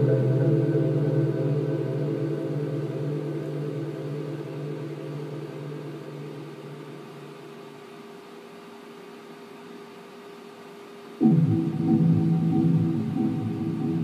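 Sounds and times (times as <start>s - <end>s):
held musical chord ringing: 0.0s - 6.9s, 11.2s - 14.0s
faint steady hiss: 0.0s - 14.0s.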